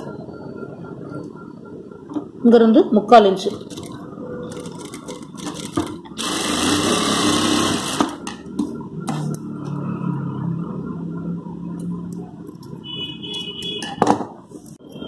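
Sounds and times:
sewing machine stitching: 0:03.6 - 0:08.2.

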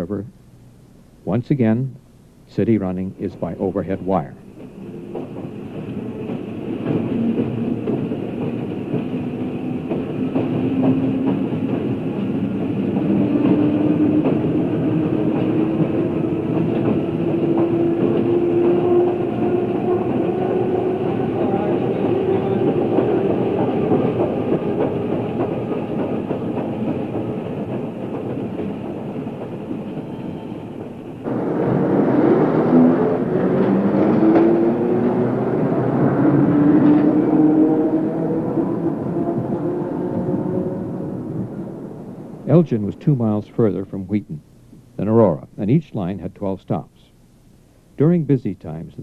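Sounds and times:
electric railcar on rails: 0:02.7 - 0:44.4.

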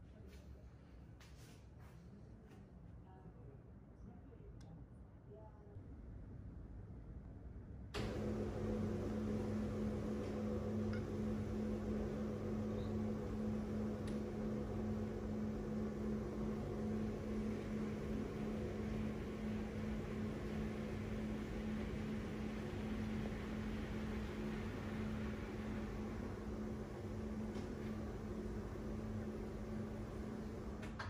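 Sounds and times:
motorised roller blind humming: 0:08.0 - 0:31.0.

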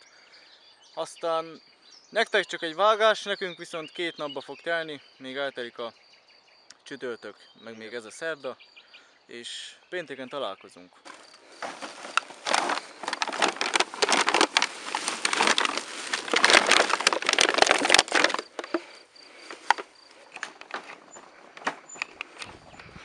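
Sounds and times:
plastic bags rustling and crinkling: 0:11.1 - 0:22.1.

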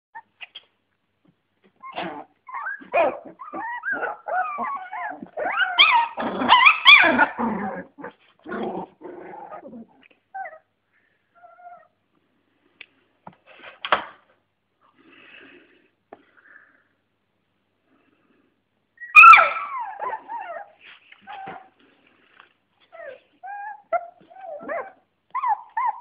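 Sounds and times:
puppies whimpering and yipping: 0:01.8 - 0:08.0, 0:19.0 - 0:21.7, 0:22.9 - 0:26.0.

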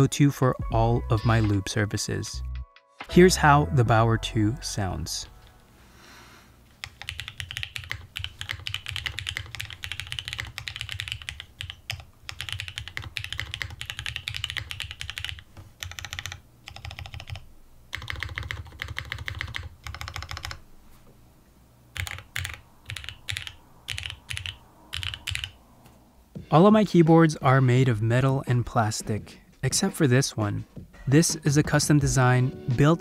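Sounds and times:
typing on mechanical keyboard: 0:06.8 - 0:20.6, 0:22.0 - 0:25.6.

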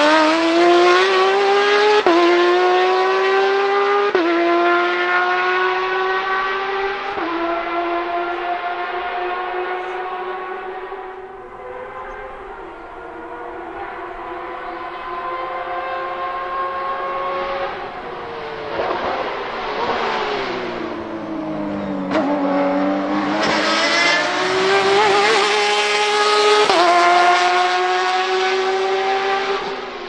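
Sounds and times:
race car engine revving: 0:00.0 - 0:30.0.

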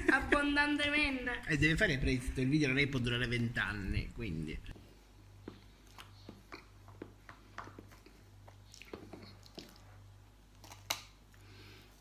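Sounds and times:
wet chewing and smacking: 0:05.5 - 0:11.2.

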